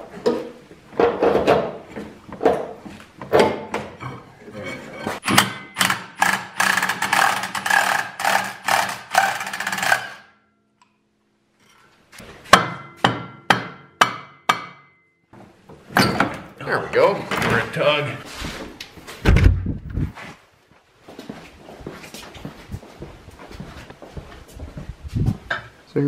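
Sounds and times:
impact wrench rattling: 5.2 - 10.3
mallet striking metal: 12.5 - 15.1.

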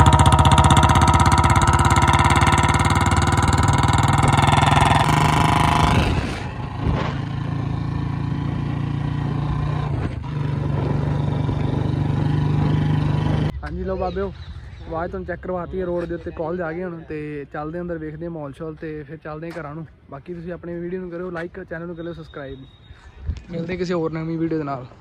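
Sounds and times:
motorcycle engine revving: 0.0 - 13.6.

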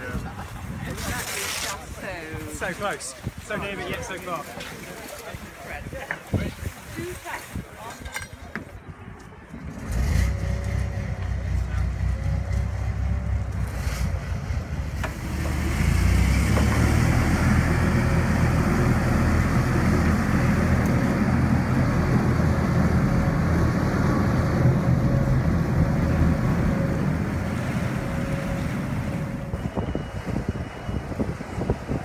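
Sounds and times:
diesel engines rumbling: 8.7 - 32.0.

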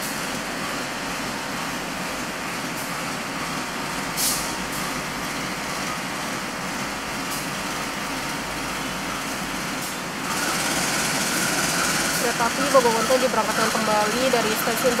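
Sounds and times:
diesel locomotive idling: 0.0 - 15.0.

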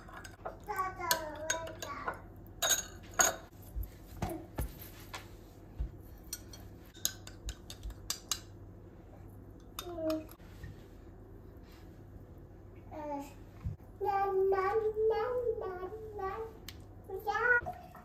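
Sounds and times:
teaspoon clinking against glass bowl: 1.1 - 3.4, 6.3 - 8.5.

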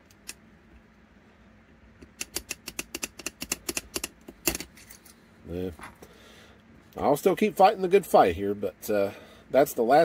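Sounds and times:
small metallic clicks: 0.0 - 0.9, 2.0 - 5.2.

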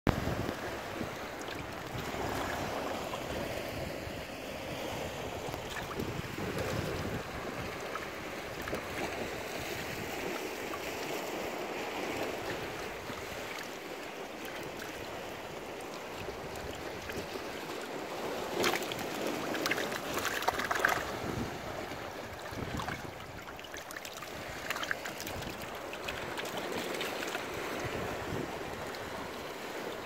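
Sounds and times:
sea water washing over rocks: 0.1 - 30.0
crackles and splashy clicks: 18.6 - 21.1, 22.6 - 27.4.

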